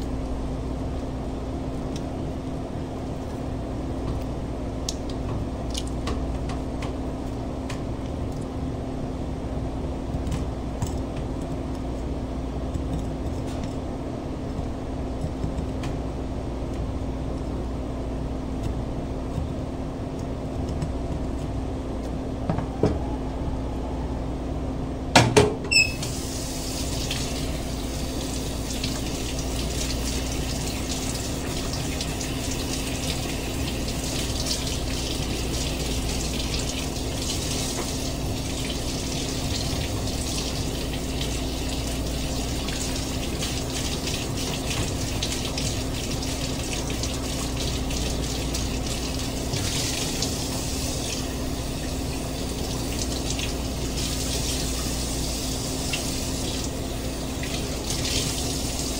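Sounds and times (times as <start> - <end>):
faucet running: 25.7 - 58.9
fish rinsed under water: 25.7 - 58.9.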